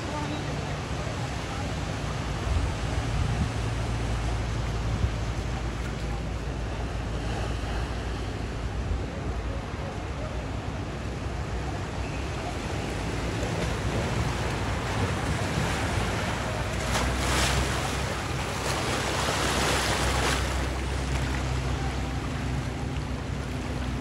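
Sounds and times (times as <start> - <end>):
low engine rumble: 0.0 - 24.0
floodwater washing and splashing: 12.3 - 24.0.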